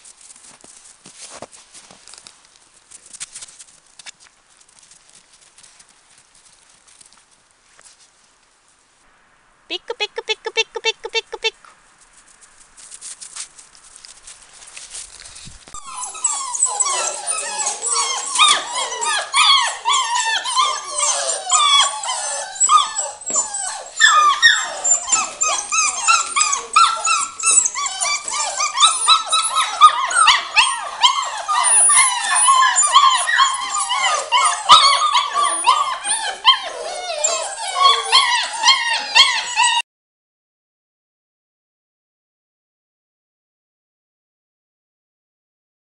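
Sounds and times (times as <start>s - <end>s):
puppies whining and yelping: 15.7s - 39.8s.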